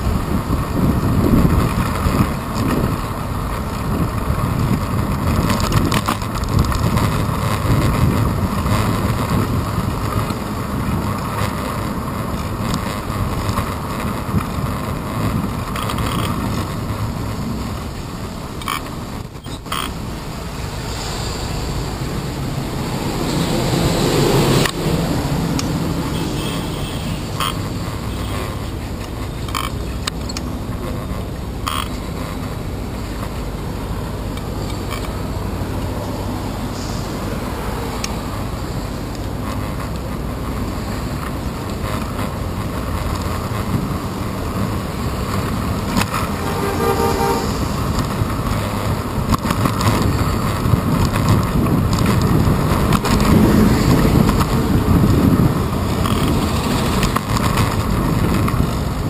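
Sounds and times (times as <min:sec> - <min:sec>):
street traffic rumble: 0:00.0 - 0:59.0
bus passing close: 0:16.8 - 0:59.0
car horn: 0:26.0 - 0:28.8, 0:46.1 - 0:48.0.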